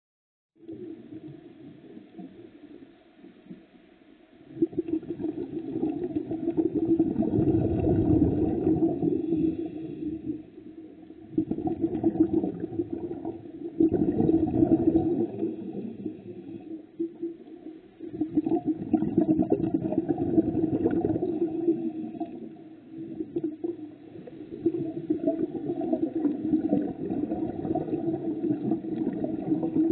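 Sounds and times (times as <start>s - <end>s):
underwater rumbling water: 0.6s - 29.9s.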